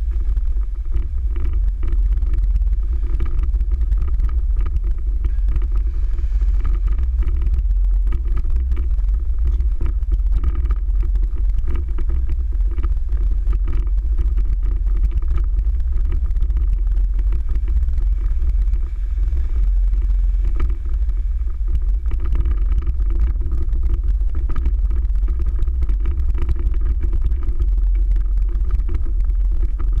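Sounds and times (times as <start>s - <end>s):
car engine and road noise: 0.0s - 30.0s.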